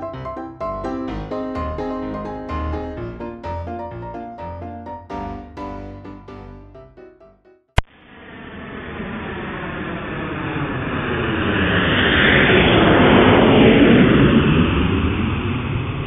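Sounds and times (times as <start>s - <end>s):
jet airliner flying over: 8.0s - 16.0s.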